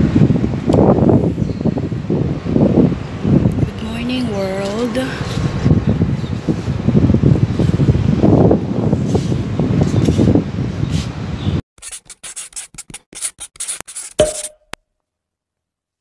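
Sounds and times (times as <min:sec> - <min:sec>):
wind buffeting microphone: 0:00.0 - 0:11.6
pen scratching on paper: 0:11.8 - 0:14.4.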